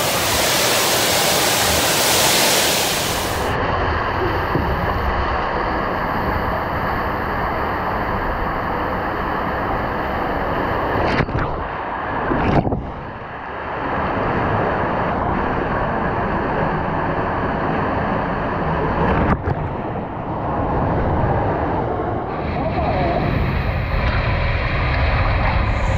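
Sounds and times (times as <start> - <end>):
water rushing in slide tube: 0.0 - 19.7
wind on microphone: 0.0 - 25.9.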